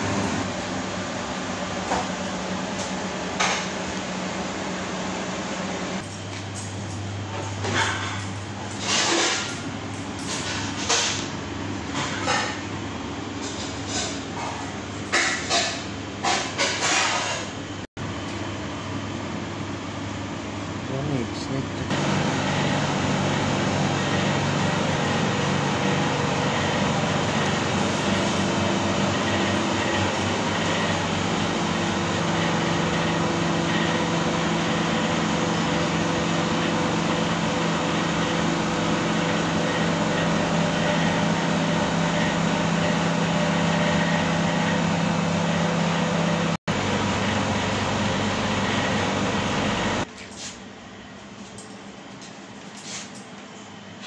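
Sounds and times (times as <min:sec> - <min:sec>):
kitchen machinery rushing: 0:06.0 - 0:12.8, 0:13.4 - 0:17.8, 0:20.9 - 0:50.1.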